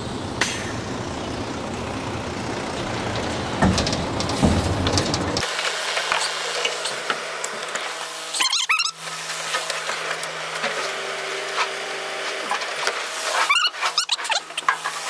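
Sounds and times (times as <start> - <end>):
truck engine rumbling: 0.0 - 5.5
thuds: 3.1 - 5.4.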